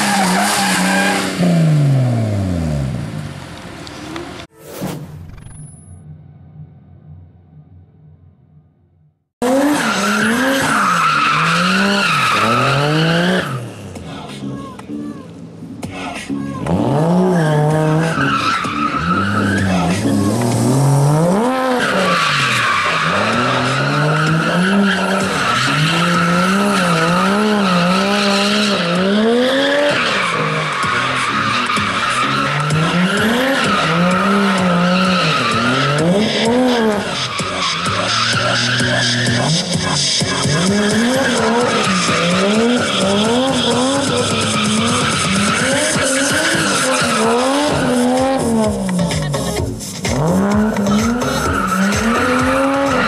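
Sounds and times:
car engine revving: 15.6s - 53.0s
tyres squealing: 29.6s - 53.0s.

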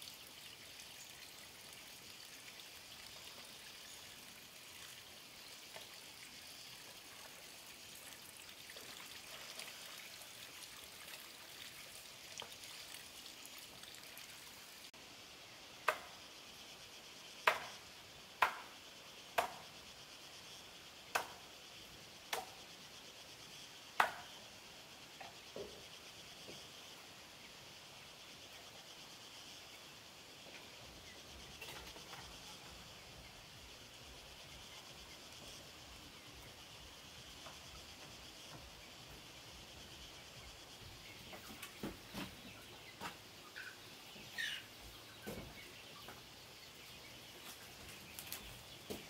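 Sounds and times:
high background hiss: 0.0s - 49.0s
sharp knocks or chops: 17.4s - 17.8s, 18.4s - 18.7s, 19.4s - 19.6s, 21.1s - 21.4s, 24.0s - 24.3s.

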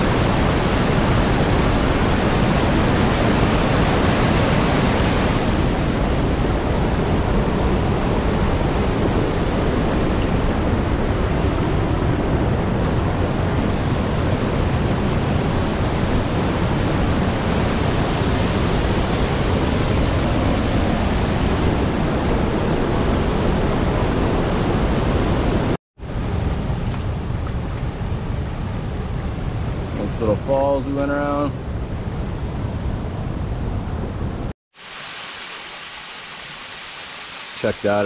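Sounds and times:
waterfall and rapids rushing: 0.0s - 28.1s, 32.9s - 38.0s
river water rushing softly: 34.7s - 38.0s.

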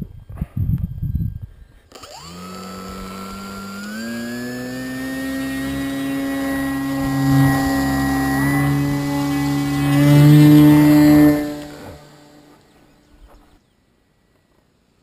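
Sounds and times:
model airplane motor whining: 1.6s - 13.5s.

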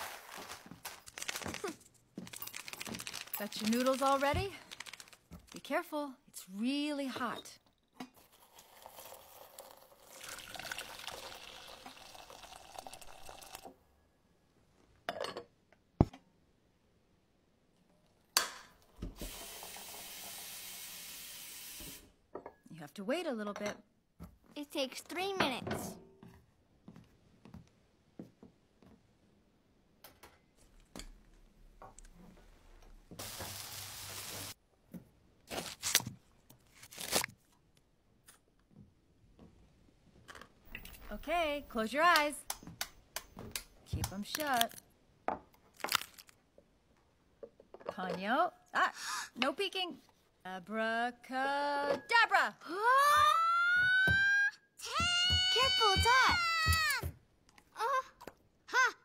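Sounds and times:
water pouring into bowl: 8.3s - 13.7s.

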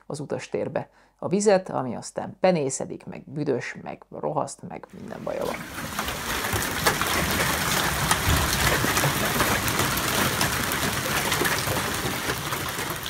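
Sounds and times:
heavy rain hiss: 5.0s - 13.0s
hailstones ticking on cars: 5.4s - 13.0s.

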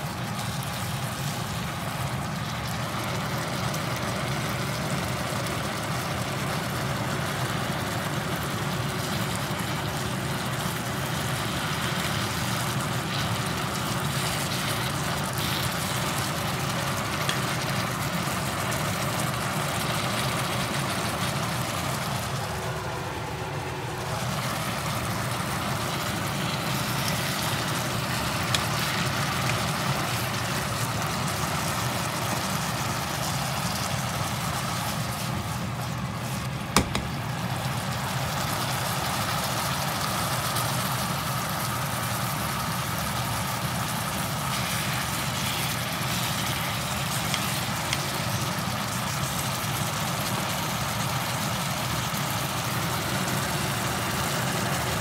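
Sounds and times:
food sizzling in a frying pan: 0.0s - 55.0s
utensil tapping a pan: 36.8s - 37.2s.

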